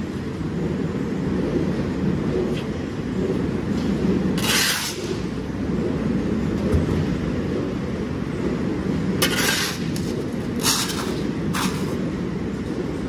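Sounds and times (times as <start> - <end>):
low rumble: 0.0 - 13.0
shovel scraping concrete: 4.4 - 5.1, 9.2 - 9.8, 10.6 - 12.0.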